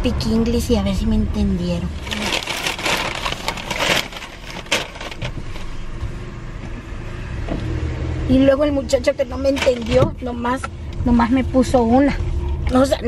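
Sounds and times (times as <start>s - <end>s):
car running rumble: 0.0s - 13.0s
paper bag rustling: 2.0s - 5.8s.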